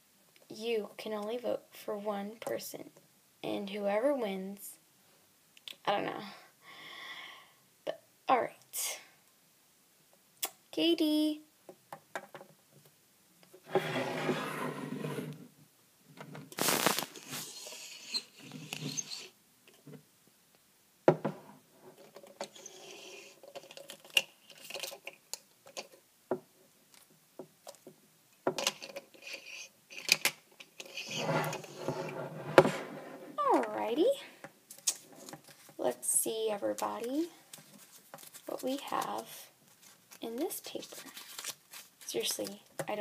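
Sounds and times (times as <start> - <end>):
rustling: 16.2 - 20.0, 28.6 - 43.0.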